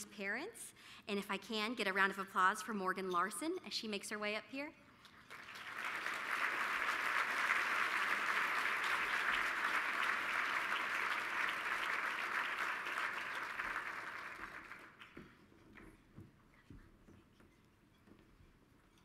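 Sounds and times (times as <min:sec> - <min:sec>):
audience applauding: 0:05.3 - 0:15.2.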